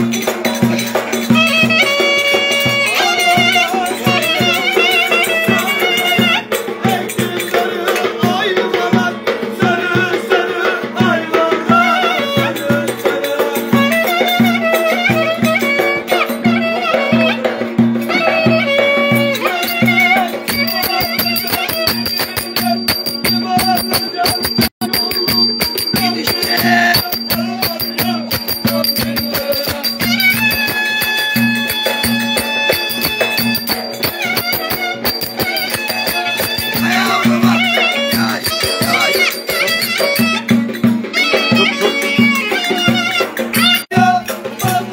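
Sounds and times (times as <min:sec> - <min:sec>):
clarinet melody: 0:01.3 - 0:06.5, 0:13.8 - 0:23.7, 0:28.7 - 0:43.9.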